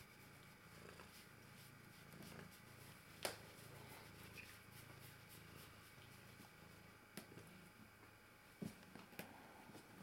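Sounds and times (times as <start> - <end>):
cat purring: 0.0 - 7.9.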